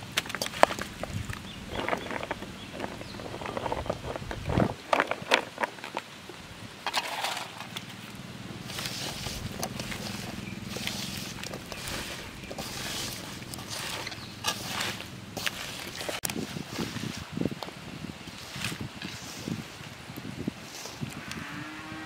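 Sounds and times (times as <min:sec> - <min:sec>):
hand squelching vegetable paste: 0:08.6 - 0:17.6, 0:18.2 - 0:21.3.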